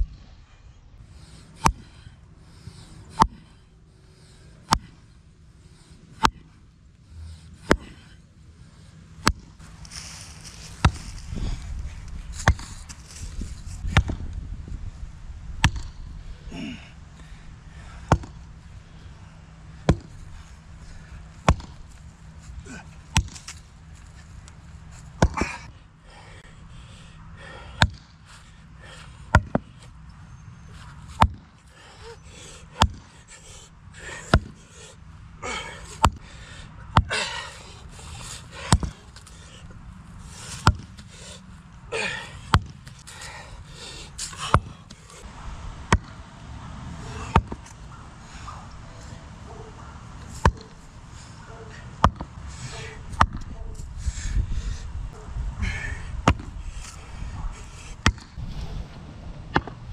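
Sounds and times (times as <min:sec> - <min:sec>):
sledgehammer striking wooden stakes: 0:01.6 - 0:01.8, 0:04.6 - 0:05.0, 0:06.1 - 0:06.5, 0:09.2 - 0:11.2, 0:12.3 - 0:12.9, 0:13.8 - 0:14.3, 0:15.6 - 0:16.0, 0:18.0 - 0:18.4, 0:19.8 - 0:20.3, 0:21.3 - 0:22.0, 0:23.1 - 0:23.6, 0:25.1 - 0:25.7, 0:29.3 - 0:29.6, 0:31.2 - 0:31.5, 0:32.7 - 0:33.1, 0:34.0 - 0:34.6, 0:35.9 - 0:36.3, 0:38.5 - 0:39.4, 0:40.4 - 0:41.0, 0:42.0 - 0:45.1, 0:47.1 - 0:47.8, 0:50.3 - 0:50.8, 0:52.0 - 0:52.3, 0:53.0 - 0:53.5, 0:58.0 - 0:58.8.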